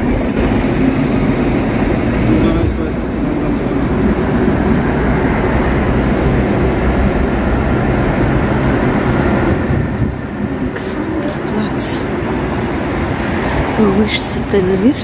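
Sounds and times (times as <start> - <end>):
cars driving by: 0.0 - 15.0
heavy lorry driving by: 0.0 - 15.0.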